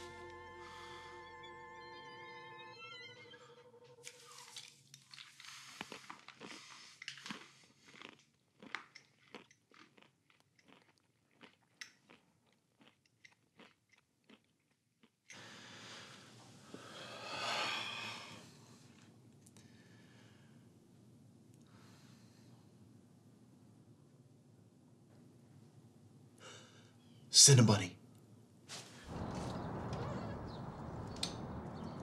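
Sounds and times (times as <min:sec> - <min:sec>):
pills being chewed: 0:04.0 - 0:15.4
rush of noise: 0:29.1 - 0:32.0.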